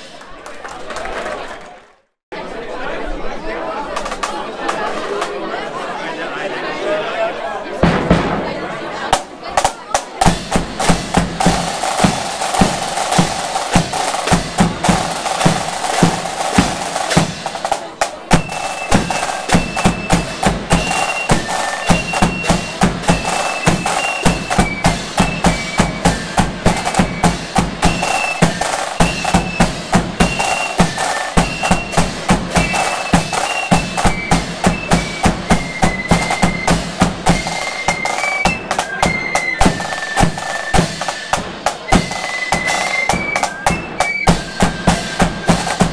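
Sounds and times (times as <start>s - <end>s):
marching drums and cymbals: 7.8s - 45.9s
flutes playing in unison: 10.4s - 45.9s.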